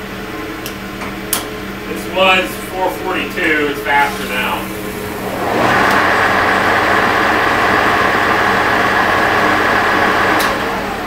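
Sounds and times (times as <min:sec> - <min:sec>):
motor hum: 0:01.4 - 0:11.0
lathe gear noise: 0:03.2 - 0:11.0.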